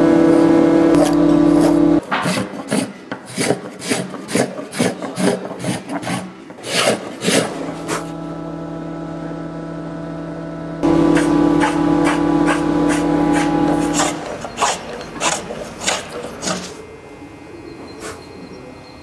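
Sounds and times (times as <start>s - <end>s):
spokeshave shaving wood: 1.0s - 8.2s, 11.0s - 16.8s.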